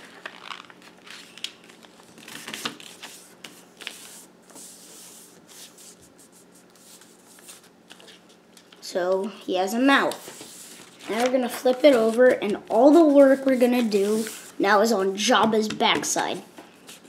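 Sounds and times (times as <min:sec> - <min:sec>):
paper rustling: 0:00.0 - 0:08.8, 0:09.9 - 0:14.5
paper rubbing: 0:13.0 - 0:14.5.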